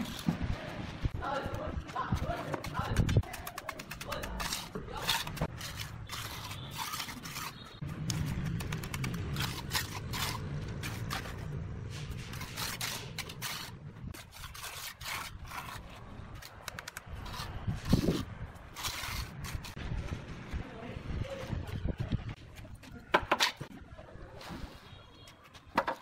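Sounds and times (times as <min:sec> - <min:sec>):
trowel scraping wet concrete: 0:02.0 - 0:19.8.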